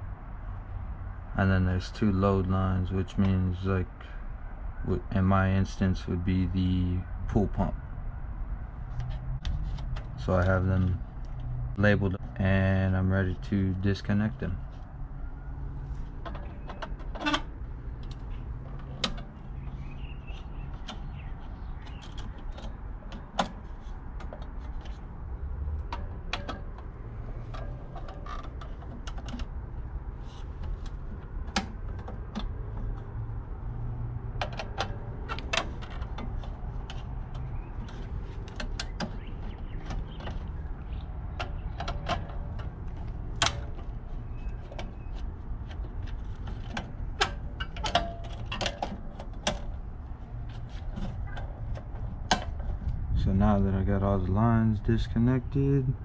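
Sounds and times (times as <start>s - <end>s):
steady low rumble: 49.2s - 56.0s.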